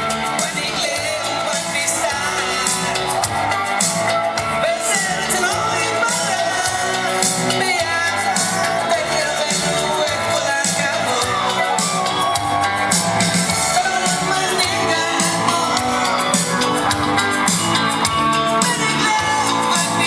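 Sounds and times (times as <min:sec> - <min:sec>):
music with singing over loudspeakers: 0:00.0 - 0:20.0.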